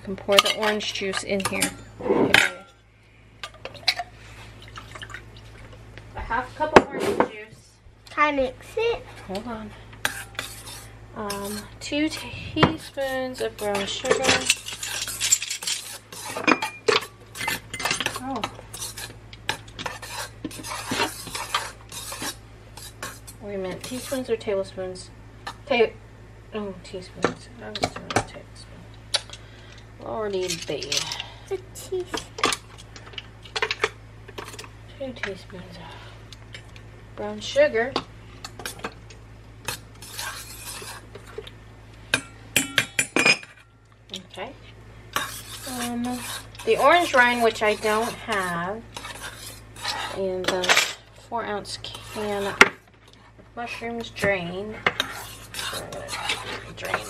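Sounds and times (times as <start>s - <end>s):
spoon scraping metal bowl: 10.0s - 24.3s, 39.6s - 41.5s, 45.1s - 50.7s, 51.5s - 52.6s, 53.7s - 57.0s.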